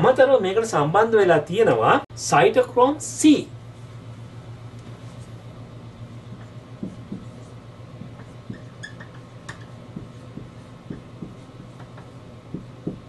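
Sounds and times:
low hum: 2.1s - 13.0s
marker writing on whiteboard: 6.1s - 13.0s
marker squeak: 8.2s - 9.8s.

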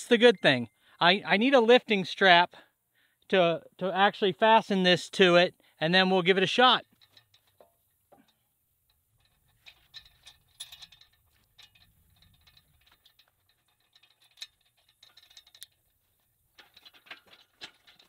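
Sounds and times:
chain and hook clinking: 9.1s - 18.0s.

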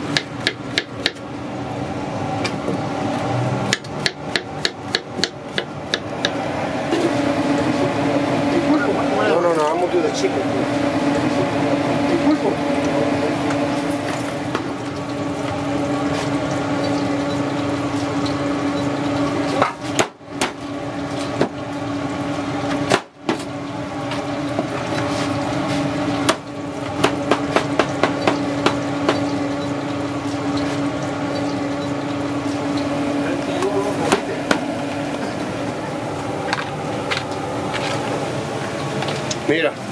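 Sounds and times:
knife chopping on cutting board: 3.7s - 6.4s, 19.6s - 20.6s, 22.9s - 23.5s, 27.0s - 29.2s.

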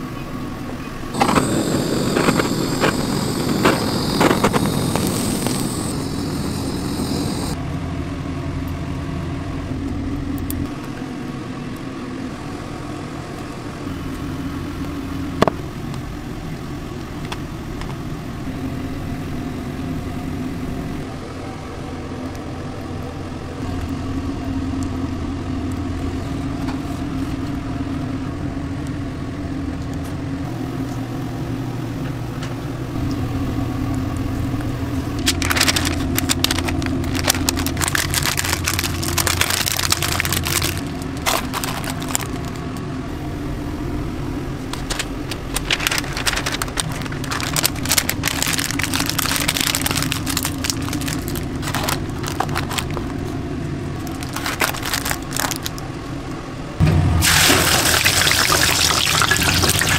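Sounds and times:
low mechanical hum: 0.0s - 59.9s
wrapping paper crinkling: 35.2s - 42.6s, 44.8s - 53.2s, 54.0s - 55.8s.

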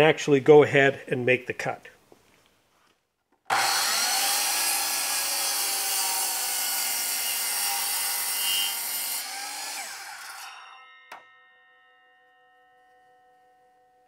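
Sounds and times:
mitre saw cutting wood: 3.5s - 11.2s.

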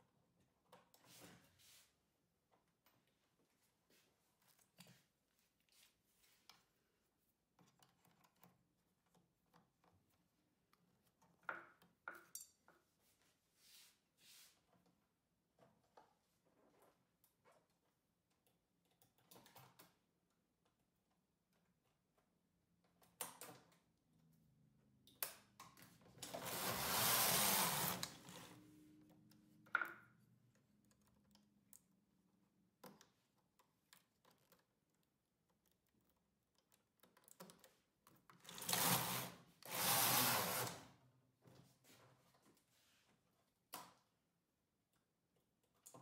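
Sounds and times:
knitting machine carriage clatter: 26.2s - 28.6s.

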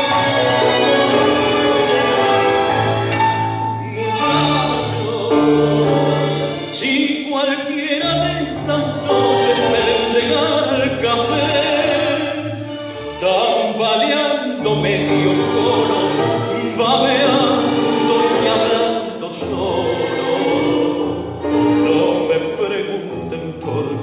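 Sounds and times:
song with singing over instruments: 0.0s - 24.0s.

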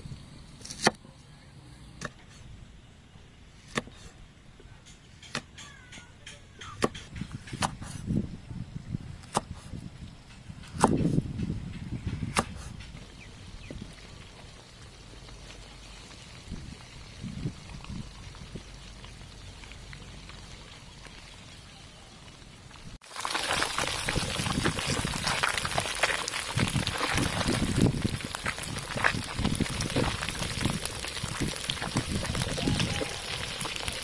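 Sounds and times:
cleaver chopping on wooden board: 3.6s - 4.0s, 6.6s - 8.0s, 9.2s - 9.7s, 10.7s - 11.2s, 12.1s - 12.7s
fish frying in hot oil: 22.4s - 34.0s.

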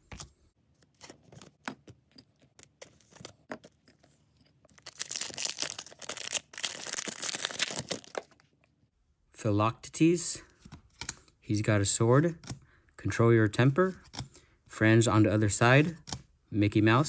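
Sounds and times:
foil wrapper tearing: 4.8s - 8.4s.

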